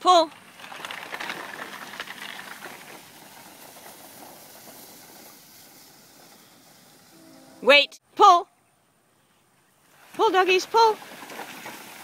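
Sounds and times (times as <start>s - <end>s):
cart rustling and scraping over ground: 0.0s - 7.6s, 10.6s - 12.0s.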